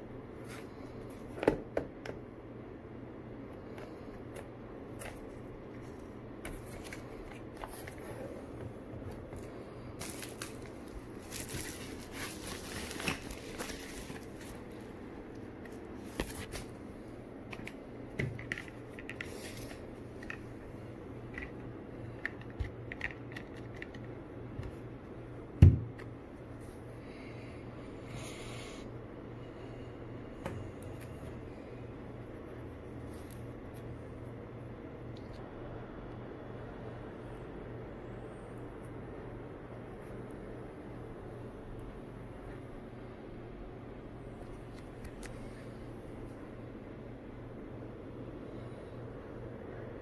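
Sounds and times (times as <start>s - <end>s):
packaging rustling and clicking: 9.1s - 14.9s
plastic wrap tearing and crinkling: 10.0s - 14.8s.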